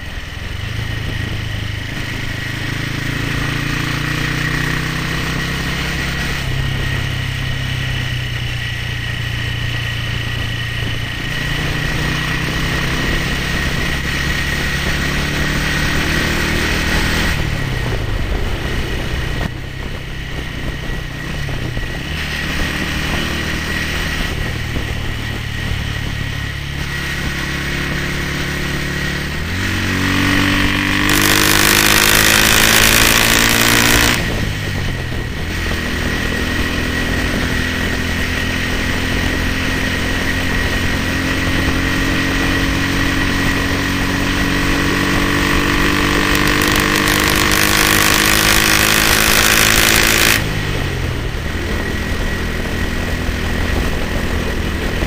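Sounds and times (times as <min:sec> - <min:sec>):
wind rush: 0:00.0 - 0:55.0
motorcycle engine pulling: 0:27.1 - 0:34.9, 0:35.6 - 0:55.0.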